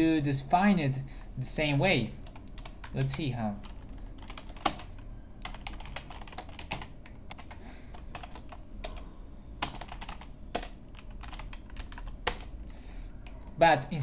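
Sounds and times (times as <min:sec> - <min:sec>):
computer keyboard typing: 0:02.2 - 0:12.6.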